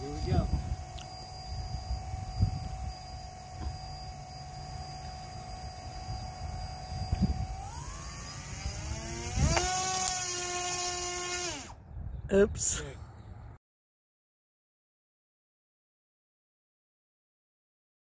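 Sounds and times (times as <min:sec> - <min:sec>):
motor whine: 0:00.0 - 0:11.8.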